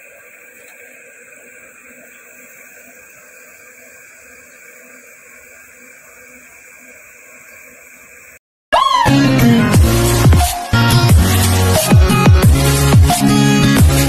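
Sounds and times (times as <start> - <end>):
steady background hiss: 0.0 - 8.4.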